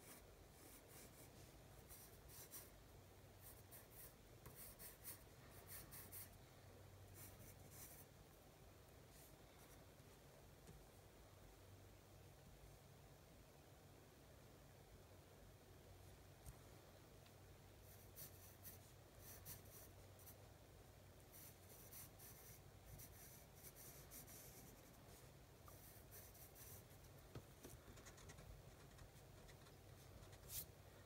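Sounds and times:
pencil scratching on paper: 0:00.0 - 0:02.7, 0:03.4 - 0:06.4, 0:07.2 - 0:08.1, 0:17.8 - 0:20.4, 0:21.3 - 0:30.7.

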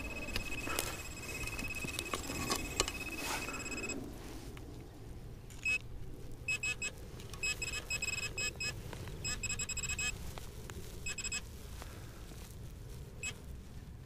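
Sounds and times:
metal detector beeps: 0:00.0 - 0:04.0, 0:05.6 - 0:05.8, 0:06.5 - 0:10.2, 0:11.0 - 0:11.4
metal detector tone: 0:00.0 - 0:04.0, 0:06.5 - 0:10.2, 0:11.0 - 0:11.4.

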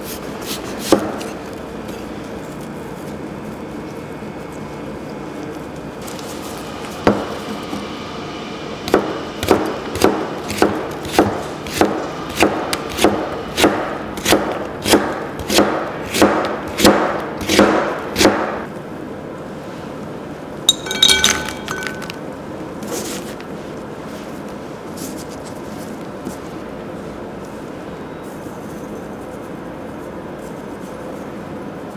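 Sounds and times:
knife chopping on cutting board: 0:00.5 - 0:01.4, 0:08.9 - 0:18.6
strips clinking into glass bowl: 0:20.7 - 0:22.2.

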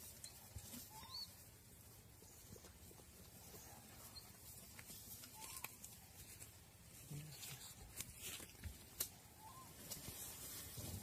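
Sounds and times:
bird chirping: 0:00.2 - 0:01.7, 0:03.4 - 0:06.2, 0:09.2 - 0:09.9.

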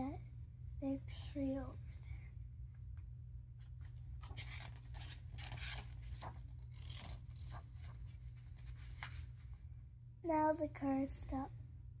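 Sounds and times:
low steady hum: 0:00.0 - 0:12.0
book pages rustling: 0:03.6 - 0:09.6.

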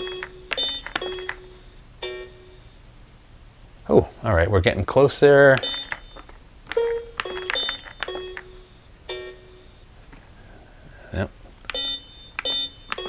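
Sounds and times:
electronic keypad beeps: 0:00.0 - 0:02.7, 0:05.6 - 0:09.8, 0:11.7 - 0:13.0
button press clicks: 0:05.6 - 0:08.6.

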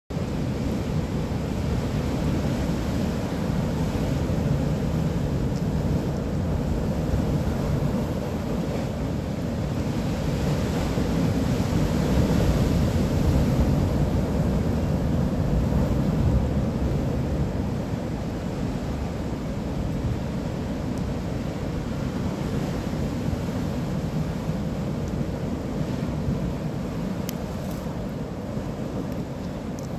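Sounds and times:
surf on the shore: 0:00.1 - 0:29.9.

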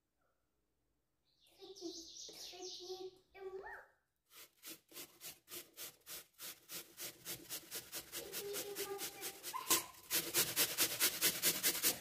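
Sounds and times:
apple rasping on a grater: 0:04.3 - 0:12.0.

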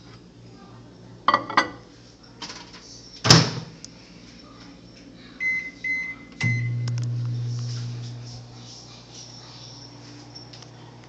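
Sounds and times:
microwave oven humming: 0:00.0 - 0:11.0
short keypad beeps: 0:05.4 - 0:06.9.

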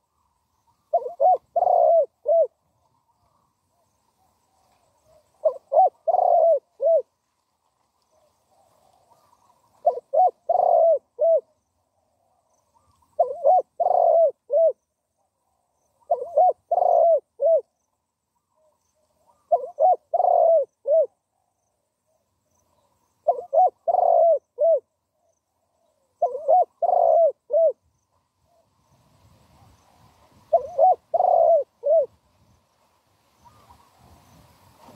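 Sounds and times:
dove cooing: 0:00.0 - 0:03.8, 0:04.7 - 0:07.1, 0:08.5 - 0:14.8, 0:15.9 - 0:17.8, 0:18.4 - 0:21.5, 0:23.2 - 0:24.9, 0:25.6 - 0:27.8, 0:29.6 - 0:32.2.

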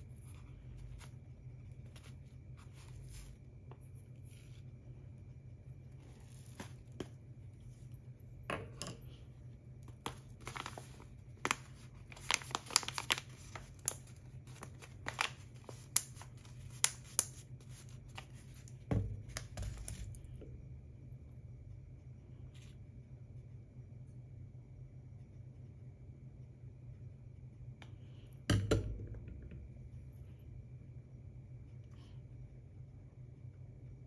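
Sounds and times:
paper bag crinkling: 0:10.0 - 0:18.7.

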